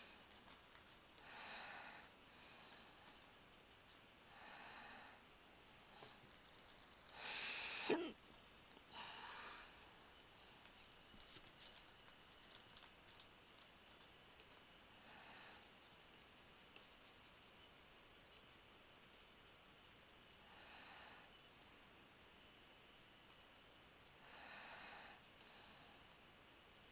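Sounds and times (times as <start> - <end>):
stylus scratching on tablet: 15.0 - 20.2.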